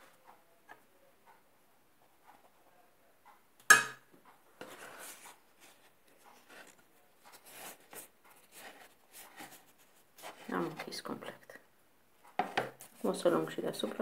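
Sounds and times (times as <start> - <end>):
pastry sheets rustling and crinkling: 4.6 - 11.5, 12.7 - 14.0.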